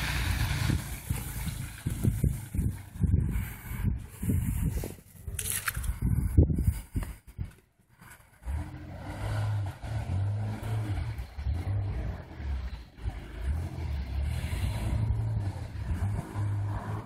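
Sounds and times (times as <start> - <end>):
car engine revving: 0.0 - 3.9, 8.0 - 17.0.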